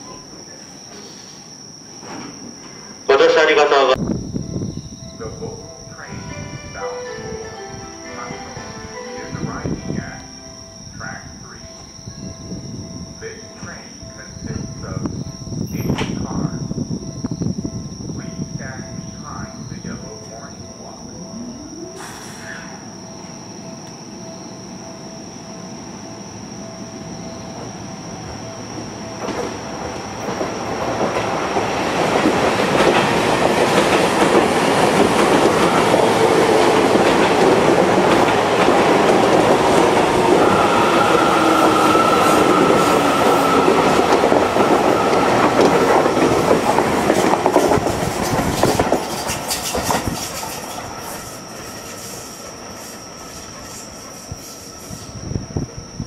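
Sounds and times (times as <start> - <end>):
electric train motor whine: 3.2 - 49.2
wheel-on-rail noise: 19.6 - 56.0
wheels clicking over rail joints: 43.5 - 52.2.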